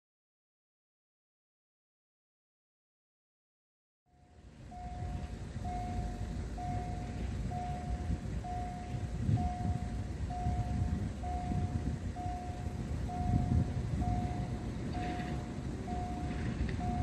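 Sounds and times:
level crossing warning beeps: 0:04.1 - 0:17.0
low rumbling noise: 0:04.1 - 0:17.0.

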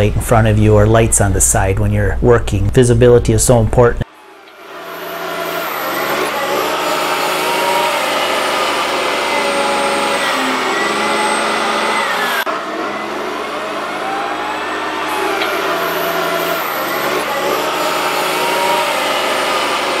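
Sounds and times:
diesel engine running: 0:04.1 - 0:20.0.

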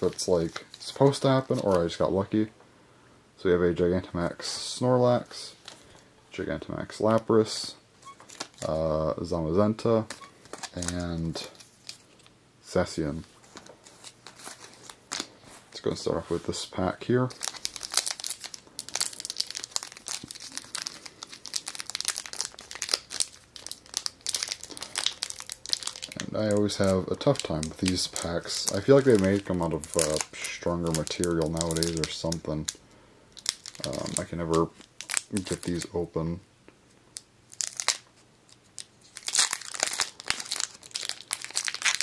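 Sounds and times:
foil wrapper crinkling: 0:08.1 - 0:08.8, 0:10.0 - 0:12.3, 0:13.4 - 0:15.5, 0:17.2 - 0:36.0, 0:37.2 - 0:42.0.

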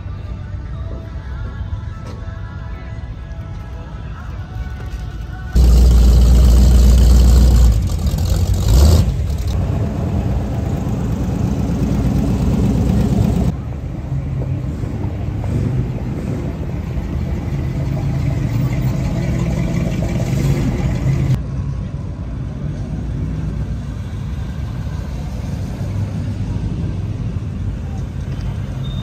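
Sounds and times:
car engines rumbling: 0:05.0 - 0:29.0.

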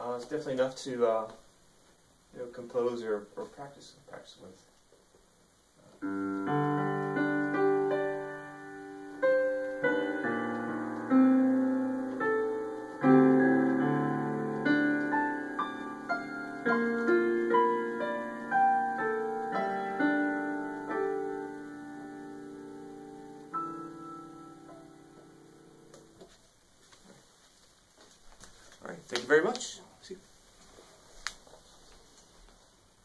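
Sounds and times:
piano chords through small speakers: 0:05.6 - 0:26.4.

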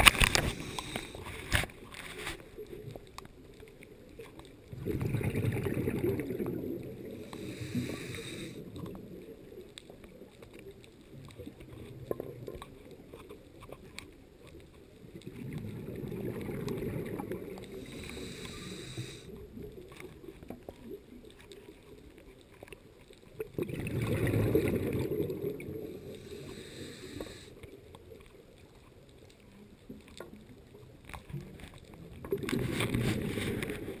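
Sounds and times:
regulator inhale hiss: 0:00.2 - 0:01.5, 0:07.0 - 0:08.8, 0:17.6 - 0:19.4, 0:25.8 - 0:27.8
exhaled bubbles underwater: 0:04.2 - 0:13.3, 0:15.0 - 0:22.0, 0:23.3 - 0:27.5, 0:29.5 - 0:34.0.

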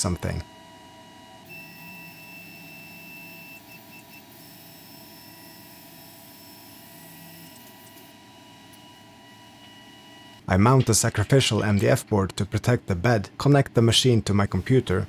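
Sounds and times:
stepper motors whining: 0:01.4 - 0:10.4.

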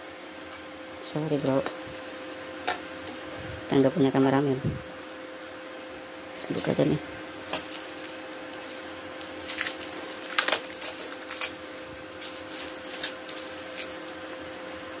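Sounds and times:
steady low hum: 0:00.0 - 0:15.0
cable clicking and crackling: 0:07.5 - 0:14.1.

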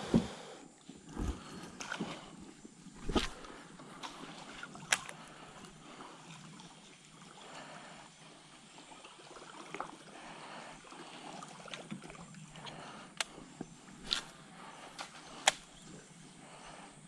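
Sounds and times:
water trickling and lapping: 0:00.0 - 0:17.0.

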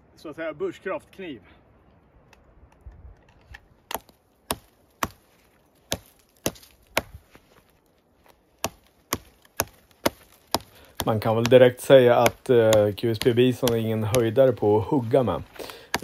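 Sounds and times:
knife chopping into branch: 0:03.9 - 0:05.2, 0:05.9 - 0:07.3, 0:08.6 - 0:16.0.

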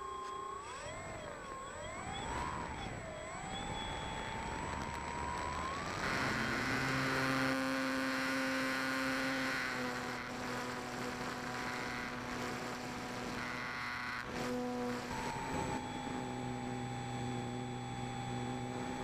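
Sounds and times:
electric motor and propeller whine: 0:00.0 - 0:19.0.

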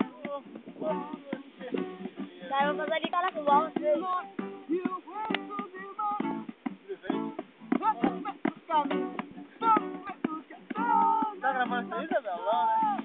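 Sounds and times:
acoustic guitar strumming: 0:00.0 - 0:13.0
people's voices: 0:06.7 - 0:13.0.

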